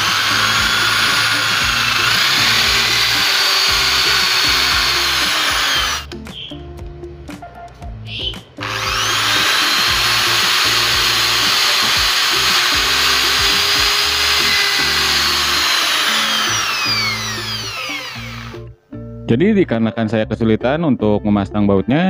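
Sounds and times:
electric drill boring: 0.0s - 6.1s, 8.6s - 18.7s
background music with bass line: 0.0s - 22.0s.

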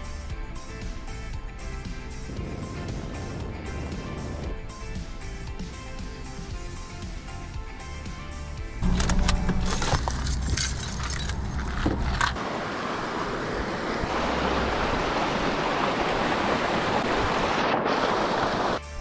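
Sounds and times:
clattering and knocking of handling: 8.8s - 12.4s
creek rushing over rocks: 11.4s - 18.8s.

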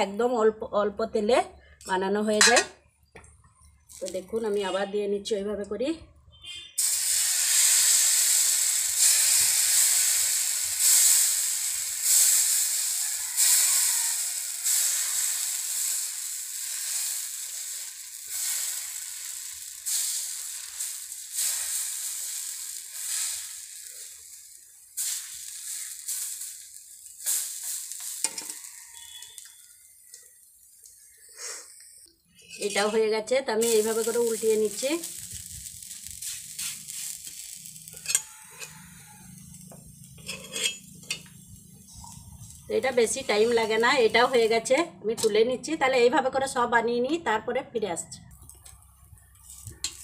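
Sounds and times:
batter sizzling on hot griddle: 6.8s - 31.6s, 32.4s - 44.7s, 48.6s - 50.0s
batter splashing: 33.6s - 37.8s.

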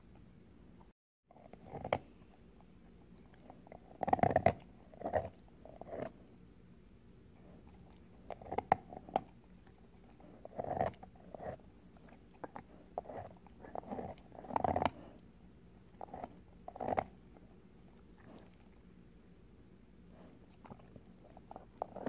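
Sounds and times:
dog crunching ice cube: 3.4s - 6.1s, 9.9s - 15.0s.

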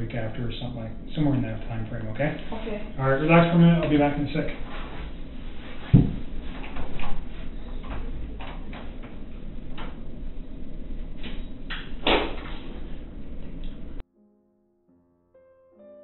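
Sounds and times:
room noise hiss and hum: 0.0s - 14.0s
knocks and rustles: 5.8s - 9.2s.

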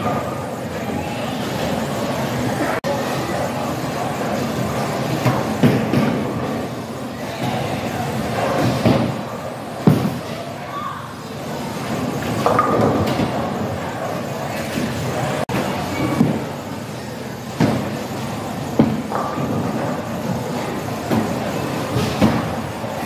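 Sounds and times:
background chatter: 0.0s - 23.0s
bowling balls thudding and rolling: 4.4s - 6.8s, 7.4s - 10.3s, 11.4s - 23.0s.

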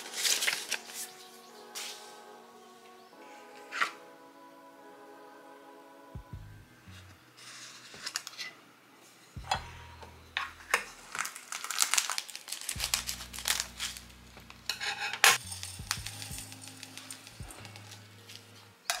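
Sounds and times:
foil pouch crinkling: 0.0s - 1.1s, 11.0s - 14.2s.

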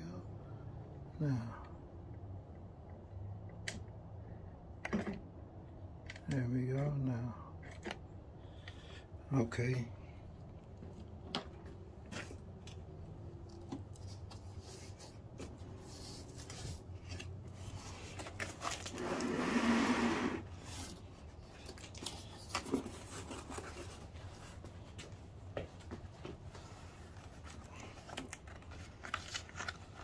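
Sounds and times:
cardboard flaps rubbing and scraping: 14.4s - 21.0s.

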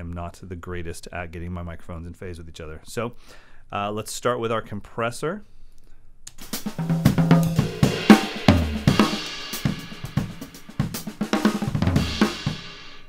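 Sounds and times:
drum kit groove: 6.3s - 13.0s
bass drum thumps: 6.8s - 11.0s.

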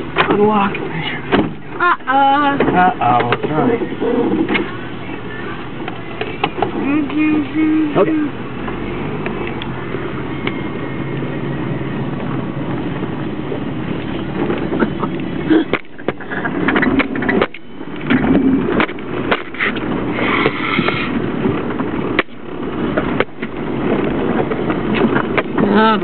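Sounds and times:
knocks and clatters over bumps: 0.0s - 4.9s, 12.2s - 26.0s
car running and rattling: 0.0s - 26.0s.

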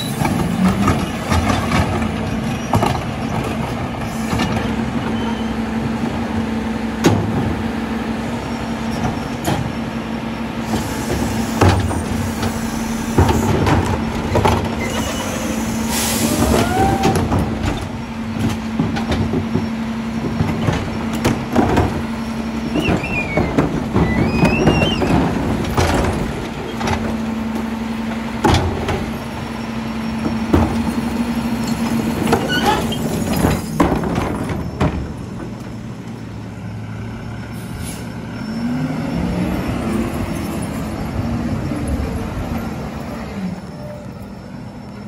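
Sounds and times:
garbage truck engine humming: 0.0s - 45.0s
plastic carts banging on hopper: 22.7s - 27.2s.

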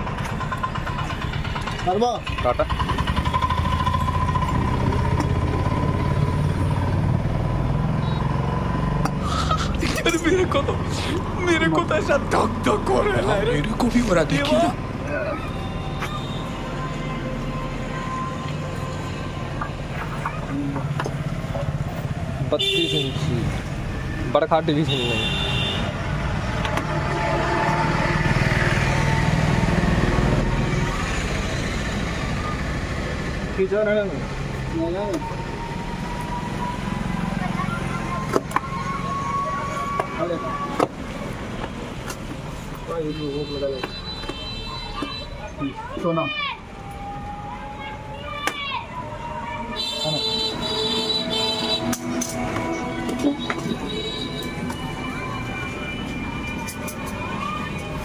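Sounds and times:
engine idling: 0.0s - 6.0s.

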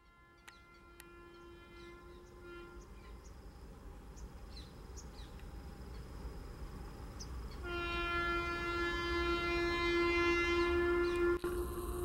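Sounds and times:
train horn blast: 0.0s - 3.2s, 7.6s - 11.8s
train rumble: 0.0s - 12.0s.

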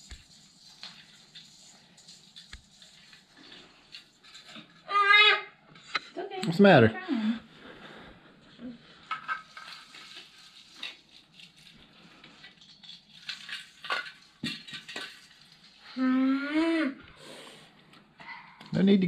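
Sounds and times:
ornaments clicking and rustling: 0.0s - 4.9s, 9.0s - 15.8s.

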